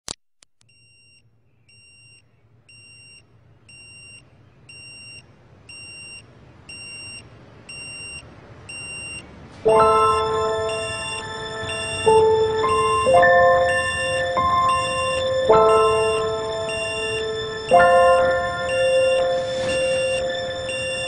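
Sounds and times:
alarm clock beeping: 2.7 - 21.0
music with bright chime tones: 9.6 - 21.0.

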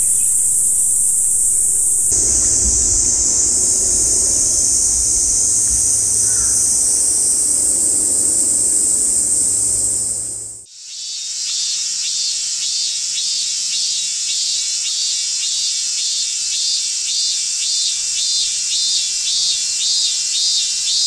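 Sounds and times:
cicadas buzzing: 0.0 - 11.2.

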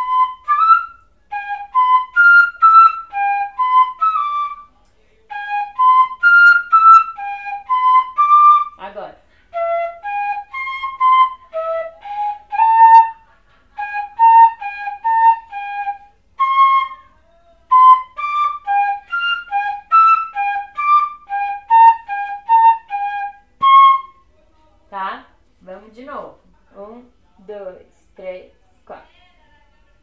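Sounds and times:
cane fife melody: 0.0 - 17.1, 17.7 - 24.3.

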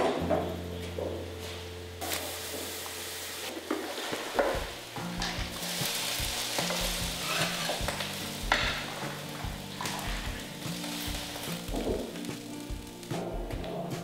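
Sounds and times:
hot wok hissing and bubbling: 1.4 - 14.0
spatula scraping metal wok: 3.4 - 12.2.

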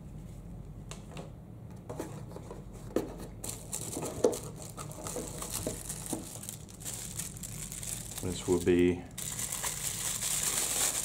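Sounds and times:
bubble wrap crinkling: 3.4 - 11.0.

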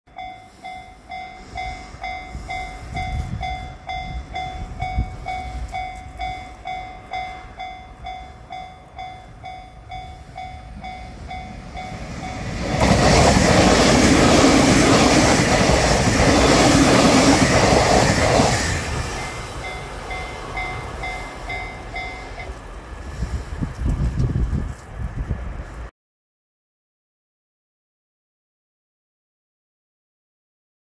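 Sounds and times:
level crossing bell ringing: 0.1 - 12.5, 19.2 - 22.5
train passing with rushing rumble: 0.1 - 25.9.

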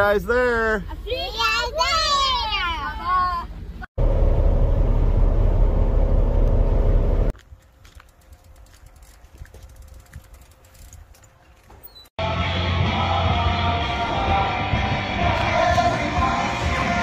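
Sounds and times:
loud steady rumbling: 3.7 - 7.3
bicycle freewheel ticking: 7.9 - 11.0.

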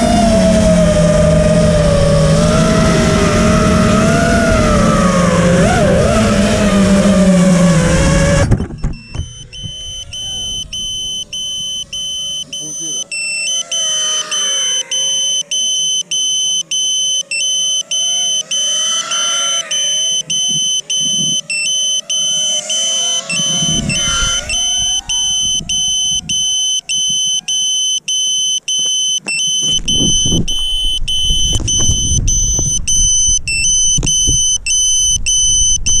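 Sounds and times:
low rumbling noise: 0.0 - 12.5, 21.9 - 27.8, 29.4 - 36.0
drone motors whining: 0.0 - 36.0
high-pitched electronic tone: 0.0 - 36.0.

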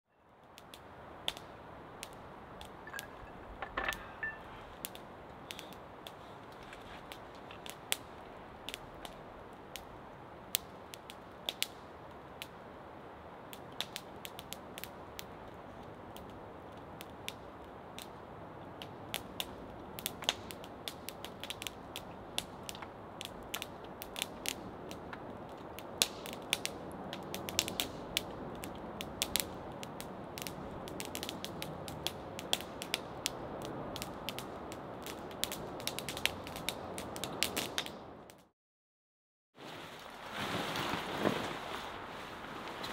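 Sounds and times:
wood fire crackling: 0.3 - 38.5, 39.6 - 42.9.

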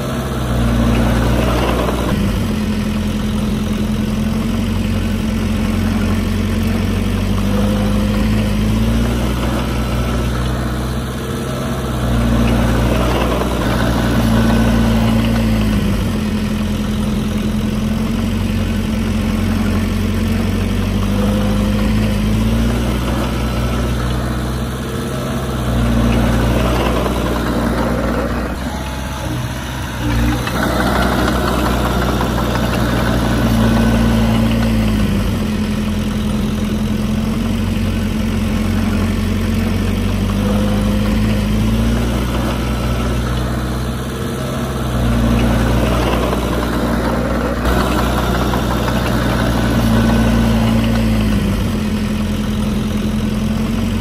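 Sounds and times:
bulldozer diesel engine: 0.0 - 54.0.

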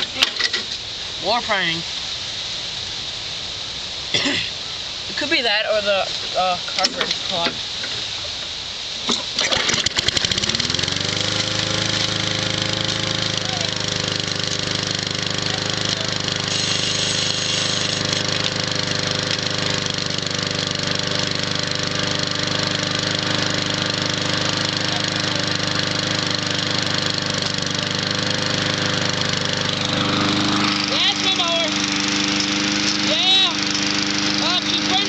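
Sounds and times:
lawn mower engine running: 9.1 - 35.0.

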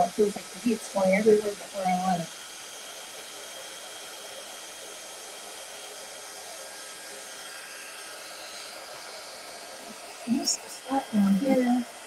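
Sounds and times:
heat tool blowing air: 0.0 - 12.0.

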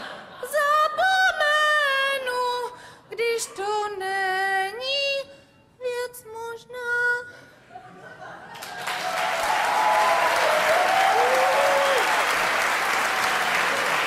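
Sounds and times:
woman singing slow song: 0.3 - 7.4
singer breathing: 2.7 - 3.1.

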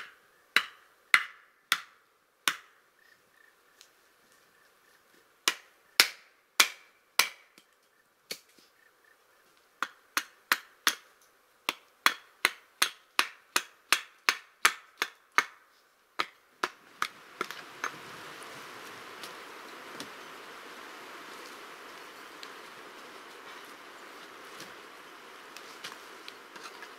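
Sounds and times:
axe chopping log: 0.0 - 2.7, 5.5 - 7.4
steady hiss: 15.6 - 26.9.

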